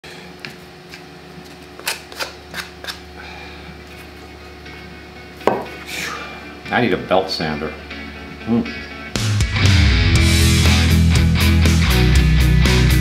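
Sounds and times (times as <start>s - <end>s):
steady low hum: 0.1s - 9.2s
wood knocking on bench: 5.4s - 5.8s.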